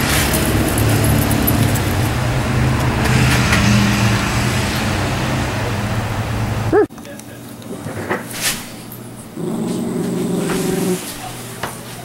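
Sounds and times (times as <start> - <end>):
engine rumble: 0.0 - 6.9.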